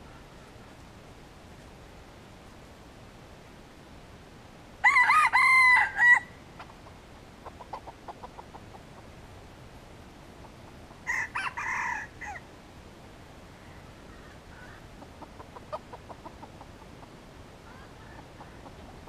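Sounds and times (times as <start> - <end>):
rooster crowing: 4.8 - 6.4, 11.0 - 12.4
soft clucks: 6.6 - 9.1, 14.2 - 19.0.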